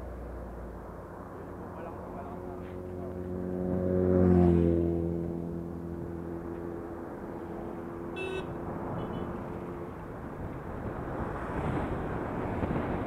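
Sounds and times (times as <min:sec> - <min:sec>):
road and wind noise: 0:00.0 - 0:13.0
vehicle engine passing by: 0:00.0 - 0:13.0.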